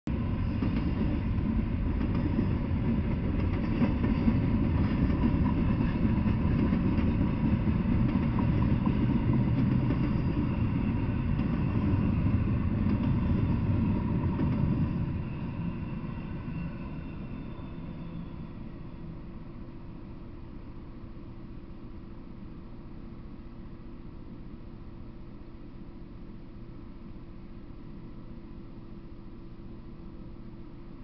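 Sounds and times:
train wheels rumbling on rails: 0.1 - 19.9.

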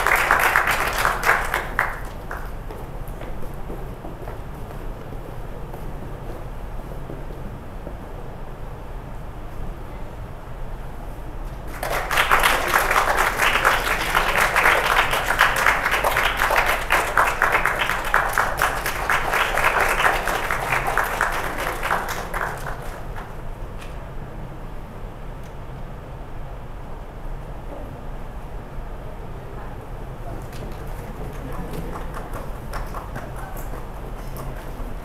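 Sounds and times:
audience applauding: 0.0 - 2.8, 11.7 - 23.5, 30.4 - 35.0.

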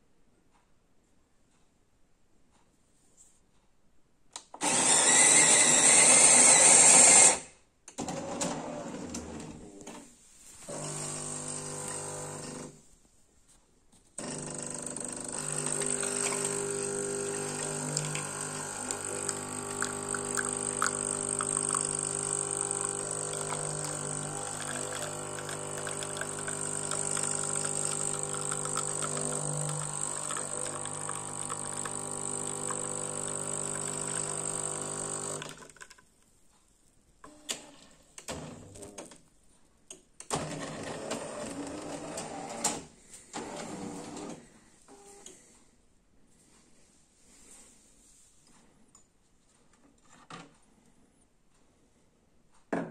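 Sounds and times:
coffee machine pump hum: 10.7 - 12.8, 14.2 - 35.6
coffee pouring hiss: 15.0 - 35.7.

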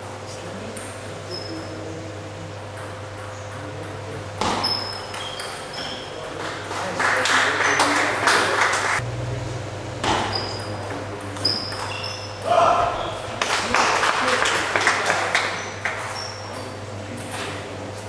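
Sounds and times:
low hum in hall: 0.0 - 18.0
table tennis ball pings: 2.8 - 6.6, 10.0 - 12.5.

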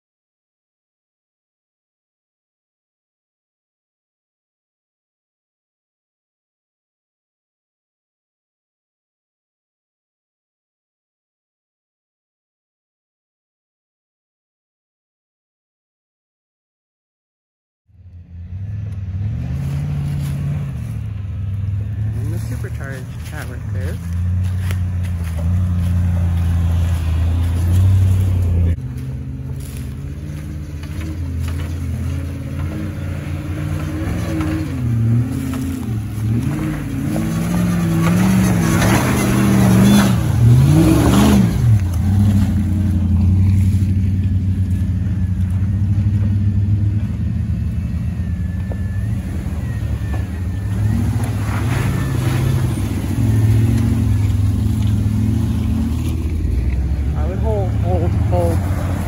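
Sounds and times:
off-road engine revving: 18.0 - 59.0.

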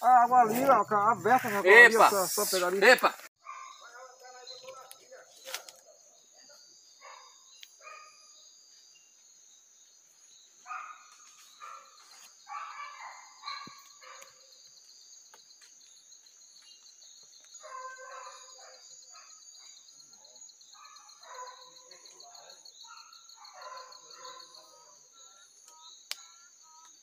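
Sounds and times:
night insects chirring: 0.0 - 27.0
dogs baying and barking: 3.4 - 4.7, 10.7 - 14.6, 17.6 - 25.2.

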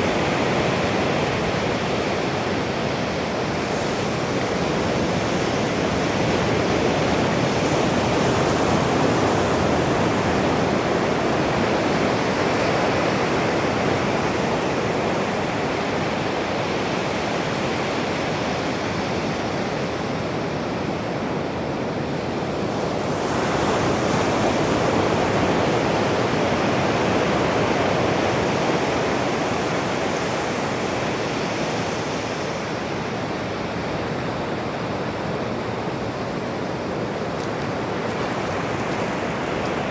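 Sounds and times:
ocean waves breaking on shore: 0.0 - 39.9.

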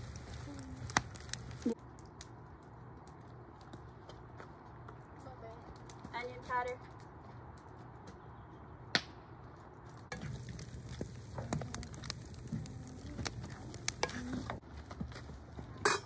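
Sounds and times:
food sizzling in a pan: 0.0 - 1.8, 10.1 - 14.6
cooking utensil clicks and scrapes: 10.1 - 14.6.

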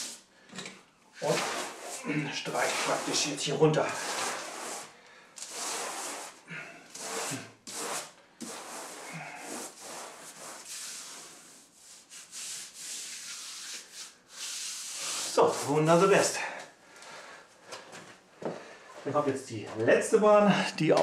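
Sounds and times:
brush sweeping over wallpaper: 0.0 - 0.2, 1.2 - 16.5.

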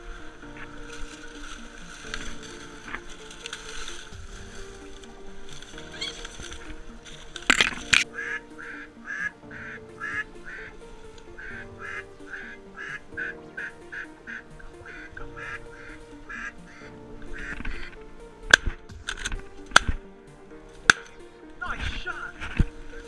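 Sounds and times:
background music: 0.0 - 23.0
duck quacking: 11.4 - 17.9.

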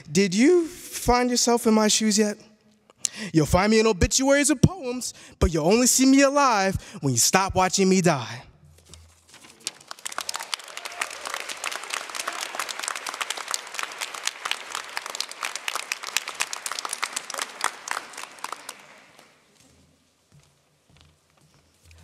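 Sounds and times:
audience applauding: 9.5 - 19.5.

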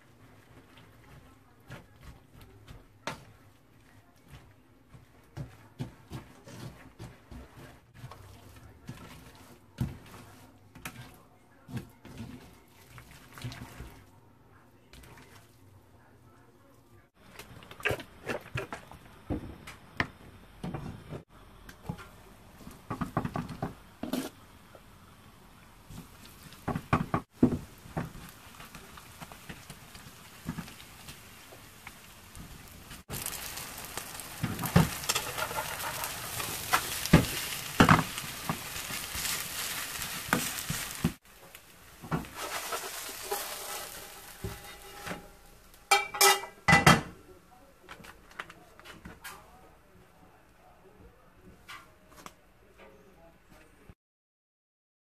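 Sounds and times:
cookware knocks and scrapes: 42.0 - 45.3, 45.9 - 47.2.

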